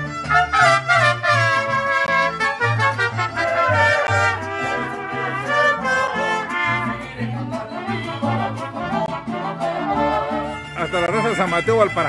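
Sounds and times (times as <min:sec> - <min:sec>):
trumpets playing melody: 0:00.0 - 0:07.2, 0:07.8 - 0:12.0
strummed guitars: 0:00.0 - 0:12.0.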